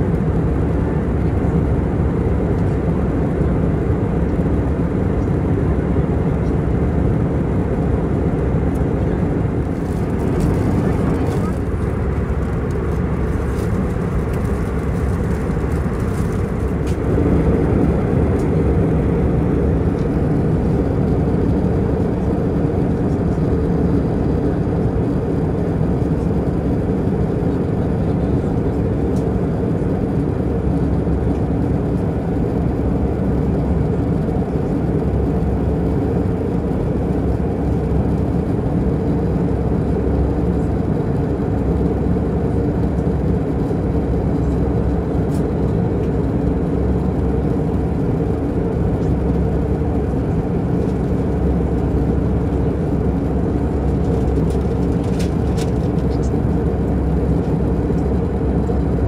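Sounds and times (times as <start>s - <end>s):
jet engine cabin rumble: 0.0s - 59.0s.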